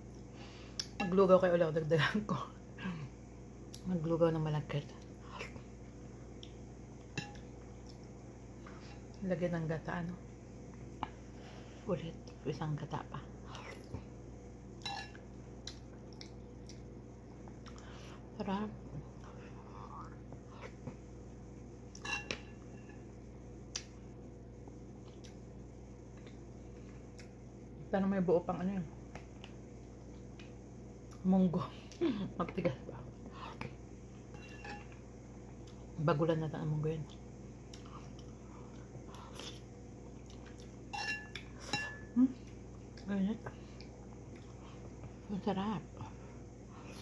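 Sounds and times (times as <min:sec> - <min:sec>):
faint steady hum: 0:00.0 - 0:47.0
faint eating and chewing: 0:04.8 - 0:27.7, 0:28.9 - 0:36.0, 0:36.9 - 0:47.0
spoon clinking on ceramic bowl: 0:14.8 - 0:15.2, 0:22.0 - 0:23.0, 0:34.4 - 0:35.0, 0:40.9 - 0:42.1
metal spoon scraping ceramic bowl: 0:22.0 - 0:22.9, 0:34.4 - 0:34.9.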